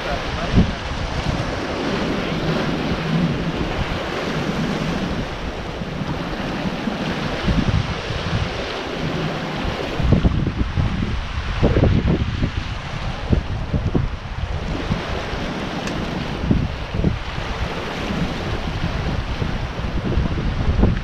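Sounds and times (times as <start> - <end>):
sea waves breaking on rocks: 0.0 - 21.0
wind rumbling on microphone: 0.0 - 21.0.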